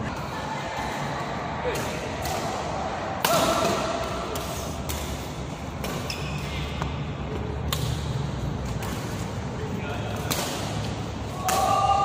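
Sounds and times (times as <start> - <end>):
rackets striking shuttlecock: 1.6 - 9.4, 10.0 - 11.8.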